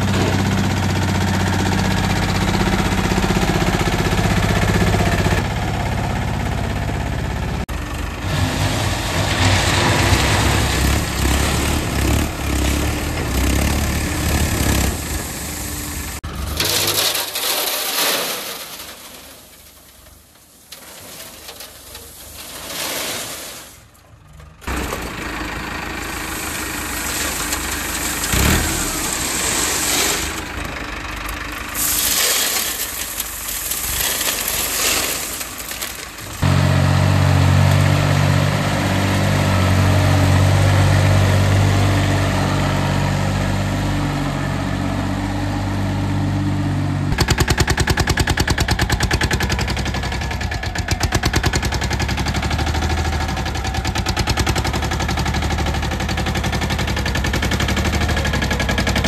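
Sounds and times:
tractor diesel engines running: 0.0s - 59.0s
crushed stone tipping into steel trolley: 16.3s - 24.0s, 26.4s - 30.7s, 31.8s - 36.4s.

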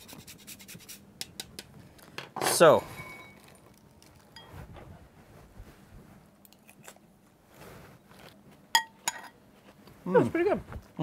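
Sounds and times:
people chewing crunchy salad: 6.4s - 7.1s, 8.0s - 8.7s.

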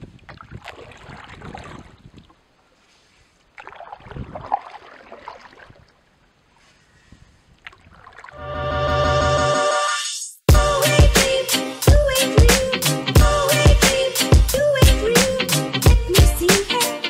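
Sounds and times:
wind on microphone: 0.0s - 2.4s, 3.9s - 4.6s
water splashing around boat: 0.0s - 8.4s.

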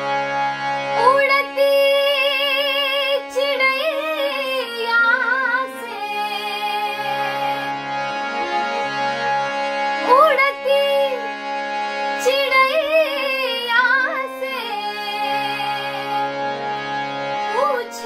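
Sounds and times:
harmonium drone: 0.0s - 18.0s
woman singing folk song: 1.0s - 7.7s, 10.0s - 11.3s, 12.2s - 16.2s, 17.5s - 18.0s.

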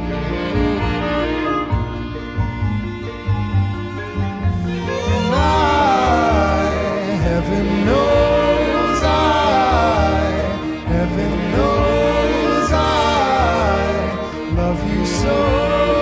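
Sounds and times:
acoustic guitar: 0.0s - 16.0s
flute: 0.0s - 16.0s
pulsing bass line: 0.0s - 16.0s
voices singing: 4.7s - 16.0s.

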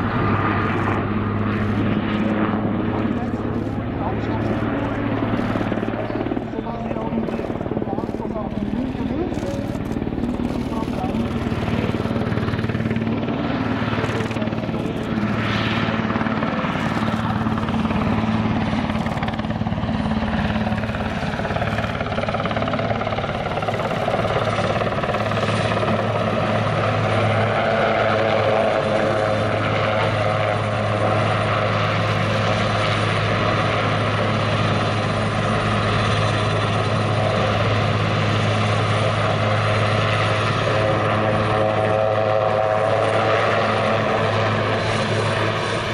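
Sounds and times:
helicopter rotor drone: 0.0s - 45.9s
turbine whine: 0.0s - 45.9s.

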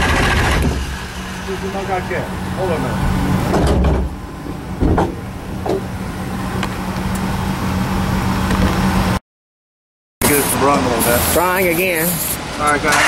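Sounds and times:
starter cranking engine: 0.0s - 1.0s
sharp clicks and knocks: 3.5s - 4.2s.

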